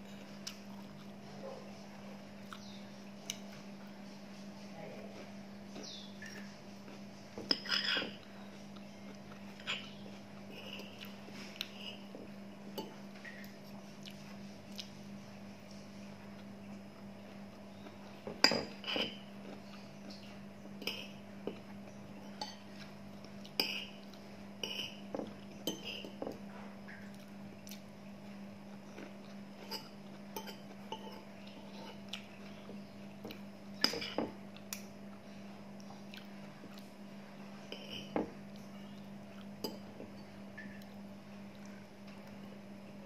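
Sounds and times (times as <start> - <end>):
cutlery clinking on ceramic bowl: 18.3 - 19.2.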